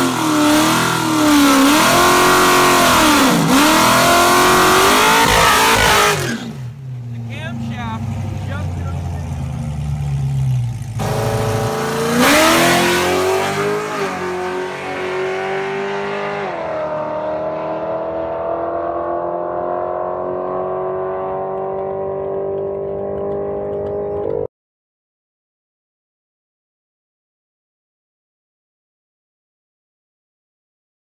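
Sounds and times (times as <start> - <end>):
car exhaust note climbing: 16.4 - 24.5.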